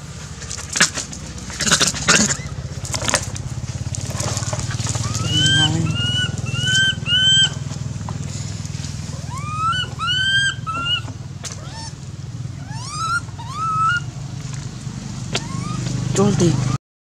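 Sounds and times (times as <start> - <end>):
steady low hum: 0.0 - 16.8
baby monkey screaming: 1.5 - 2.6, 4.4 - 7.6, 9.1 - 14.1, 15.3 - 16.8.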